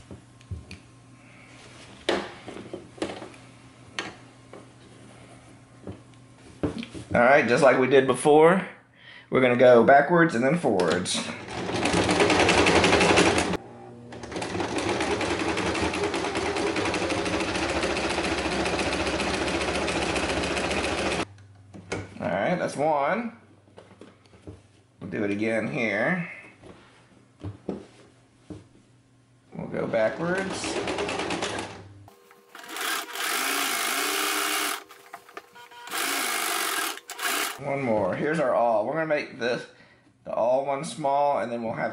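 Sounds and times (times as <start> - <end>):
sewing machine stitching: 11.4 - 21.2, 30.4 - 37.6
sewing machine clicks: 30.4 - 37.6.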